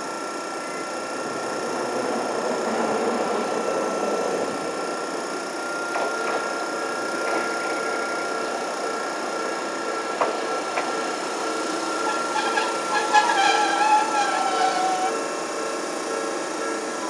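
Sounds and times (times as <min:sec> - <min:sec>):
high whine: 0:00.0 - 0:17.0
tram equipment whir: 0:00.0 - 0:17.0.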